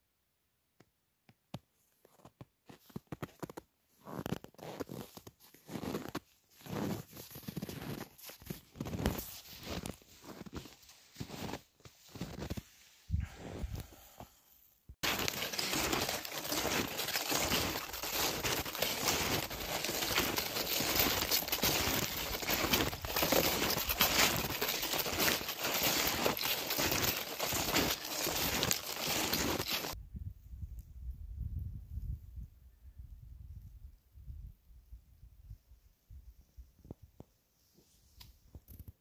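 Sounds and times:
snowshoe footsteps crunching snow: 2.0s - 13.8s, 15.0s - 30.0s.

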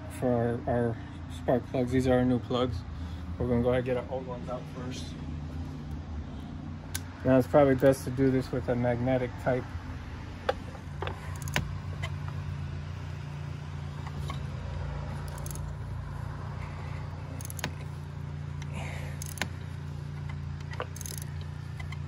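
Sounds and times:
steady low hum: 0.0s - 22.0s
ratchet metallic clicks: 10.5s - 12.4s, 15.1s - 15.9s, 16.6s - 18.0s, 18.6s - 22.0s.

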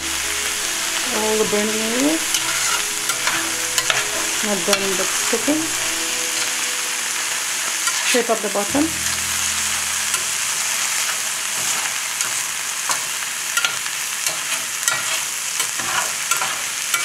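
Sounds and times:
metal turner scraping pan: 0.0s - 6.5s, 11.0s - 17.0s
vegetables sizzling in oil: 0.0s - 17.0s.

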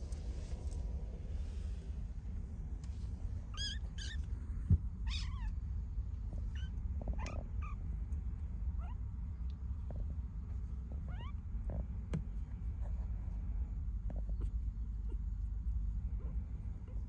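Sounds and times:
kittens mewing: 3.4s - 4.4s, 5.0s - 5.6s.

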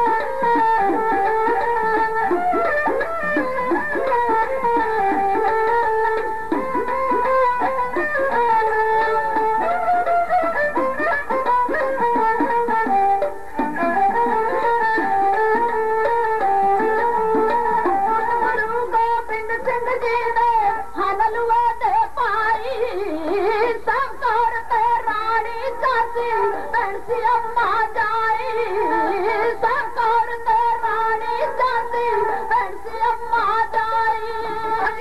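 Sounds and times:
bowed string melody: 0.0s - 20.6s.

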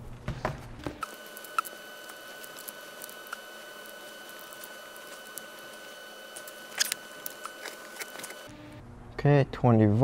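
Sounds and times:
faint high whine: 1.0s - 8.8s.

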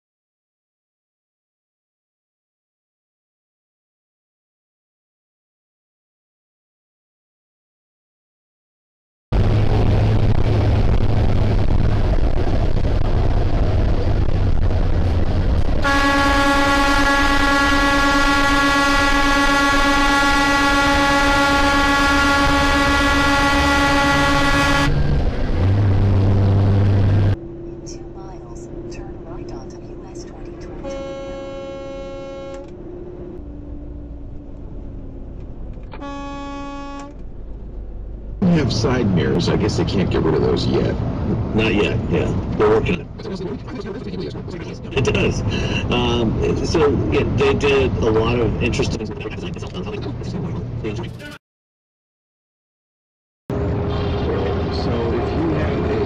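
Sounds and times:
road and wind noise: 9.3s - 51.4s, 53.5s - 56.0s
truck engine drone: 9.3s - 51.4s, 53.5s - 56.0s
vehicle horn: 15.8s - 25.0s, 30.8s - 32.7s, 35.9s - 37.2s.

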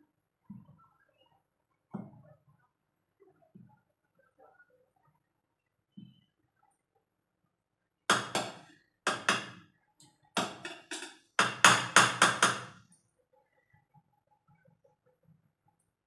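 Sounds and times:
metal spoon knocking on pot: 8.1s - 9.6s, 10.4s - 12.7s.

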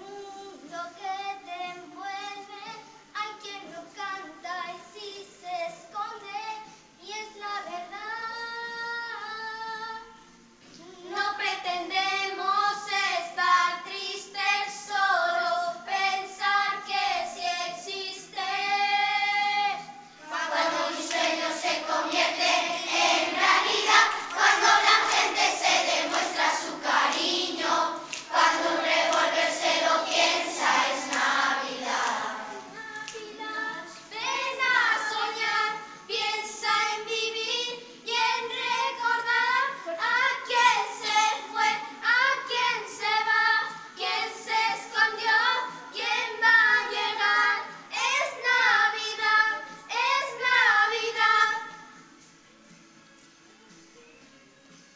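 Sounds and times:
child singing into microphone: 0.0s - 25.2s, 27.5s - 51.8s
children singing together: 11.0s - 51.8s.

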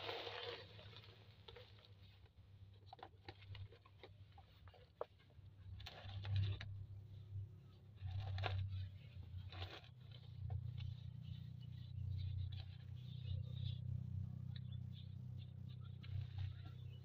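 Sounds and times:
hands scraping potting soil: 0.0s - 17.0s
low hum: 5.4s - 17.0s.

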